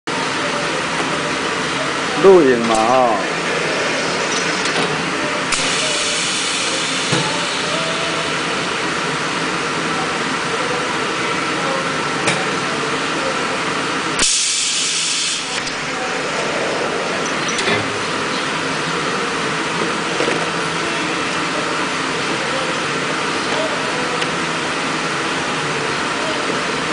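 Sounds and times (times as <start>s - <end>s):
faint machine whine: 0.2s - 26.9s
welding press hum and hiss: 0.2s - 26.9s
loud air hiss: 1.6s - 8.9s, 14.2s - 19.8s.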